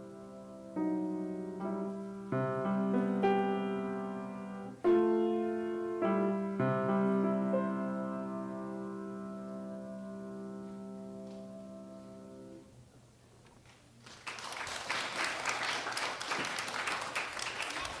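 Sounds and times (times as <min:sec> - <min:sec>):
grand piano chord: 0:00.0 - 0:12.7
audience applause: 0:14.0 - 0:18.0.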